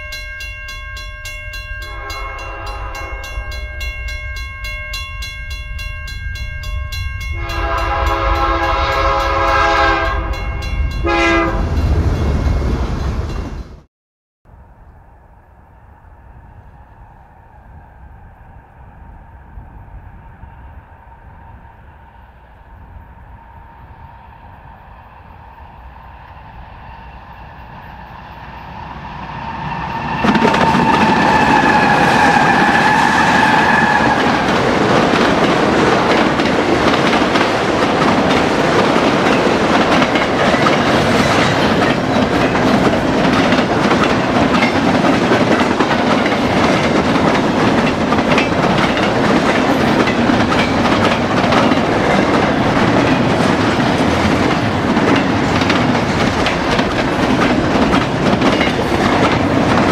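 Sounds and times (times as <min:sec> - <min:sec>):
diesel locomotive whine: 0:00.0 - 0:13.9, 0:14.5 - 0:59.9
train wheels clacking on rails: 0:29.8 - 0:59.9.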